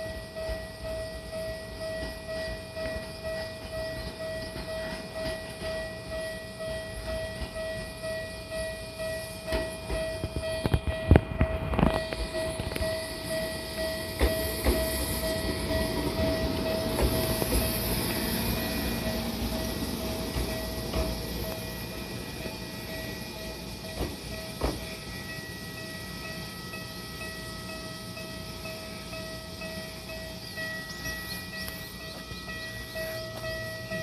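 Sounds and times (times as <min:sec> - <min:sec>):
train wheels knocking over switches: 0:14.2 - 0:17.8, 0:19.6 - 0:21.6, 0:23.9 - 0:25.0.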